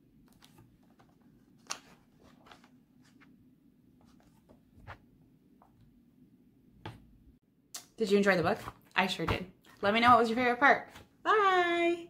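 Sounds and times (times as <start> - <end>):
book pages turning: 0.2 - 3.4, 4.0 - 5.1.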